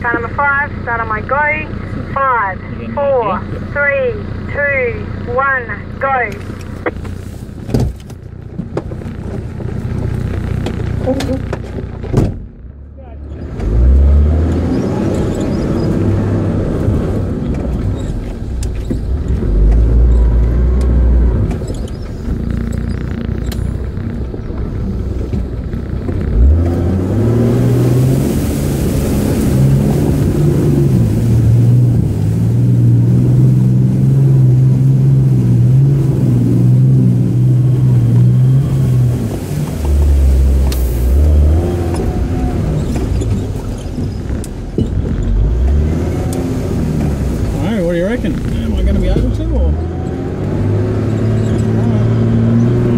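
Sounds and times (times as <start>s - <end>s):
engine revving under load: 13.2s - 52.9s.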